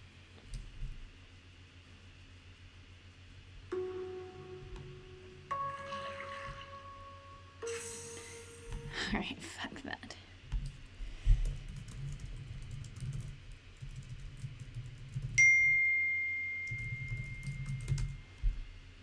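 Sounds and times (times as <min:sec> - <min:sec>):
notification ding: 0:03.7 - 0:09.0
keyboard typing clicks: 0:16.6 - 0:18.2.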